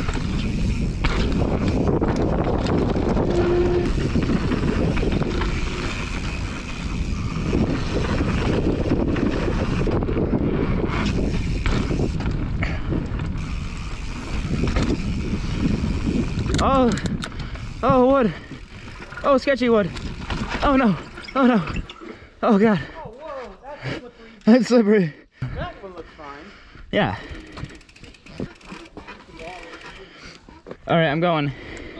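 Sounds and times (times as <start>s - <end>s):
wind buffeting microphone: 0.0s - 21.9s
bike tyres rumbling over dirt: 0.0s - 22.3s
bike rattling over bumps: 0.0s - 23.5s, 27.1s - 30.4s.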